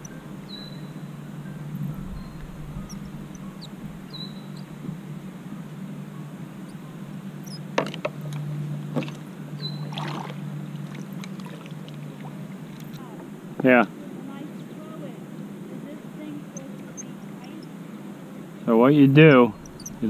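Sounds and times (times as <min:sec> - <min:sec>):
bird chirps: 0:00.0 - 0:05.0, 0:06.1 - 0:07.7, 0:09.6 - 0:09.9, 0:16.2 - 0:18.0, 0:19.0 - 0:20.0
water lapping around kayak: 0:00.0 - 0:20.0
sharp knocks on kayak: 0:07.8 - 0:08.2
small splashes: 0:09.8 - 0:13.0.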